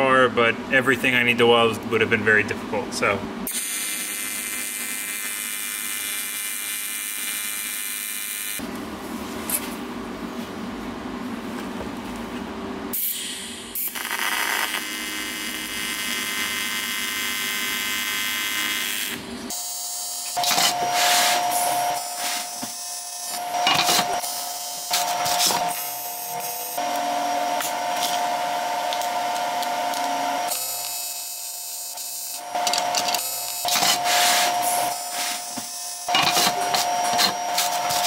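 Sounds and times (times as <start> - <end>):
welding arc buzzing: 3.4 - 8.7, 12.9 - 38.0.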